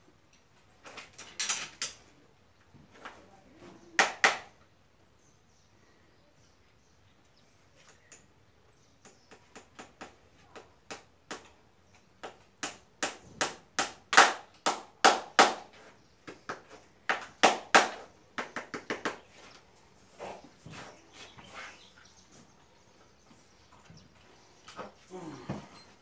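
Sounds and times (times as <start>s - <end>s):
hammer striking horseshoe nails: 12.2s - 15.7s.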